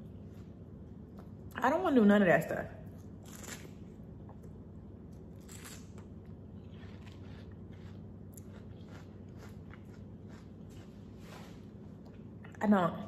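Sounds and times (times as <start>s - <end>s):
low room hum: 0.0s - 13.0s
person chewing watermelon: 3.0s - 11.2s.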